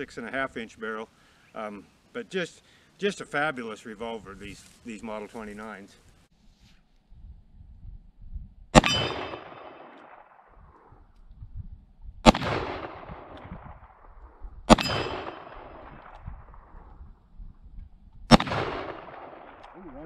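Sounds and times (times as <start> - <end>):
revolver shots with echo: 8.8 - 10.2, 14.7 - 15.9.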